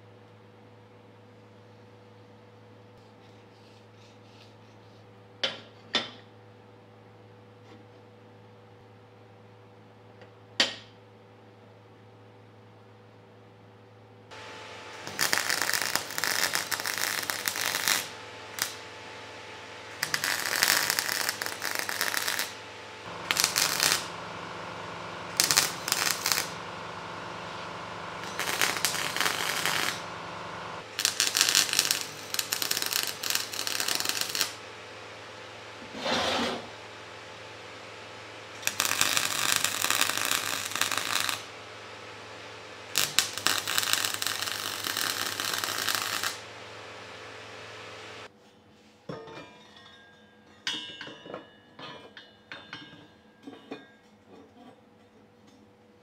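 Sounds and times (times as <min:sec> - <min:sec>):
steady low hum: 0:14.2 - 0:48.3
arc welding crackling: 0:14.4 - 0:35.8, 0:36.7 - 0:48.3.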